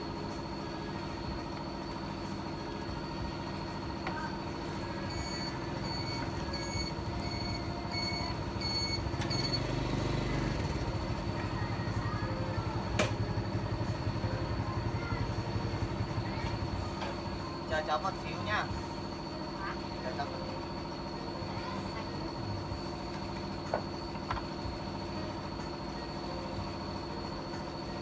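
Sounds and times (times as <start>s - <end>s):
high beeps: 5.1s - 9.7s.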